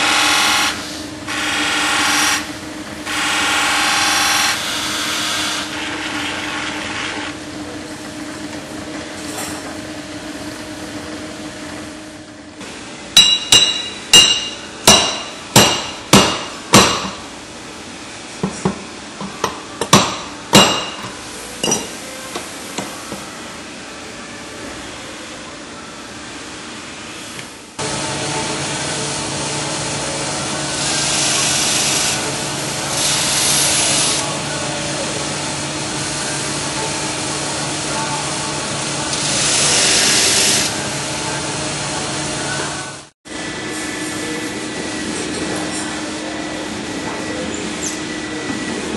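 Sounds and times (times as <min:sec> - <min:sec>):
grinding wheel humming: 0:00.0 - 0:07.4, 0:27.8 - 0:43.0.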